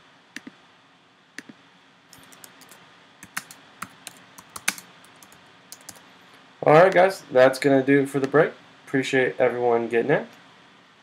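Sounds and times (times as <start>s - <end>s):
typing on computer keyboard: 2.2s - 6.0s.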